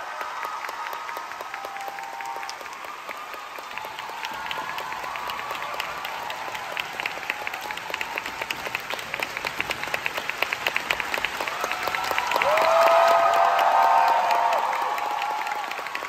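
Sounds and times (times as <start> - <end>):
audience applauding: 0.0 - 16.0
close rhythmic clapping: 0.0 - 16.0.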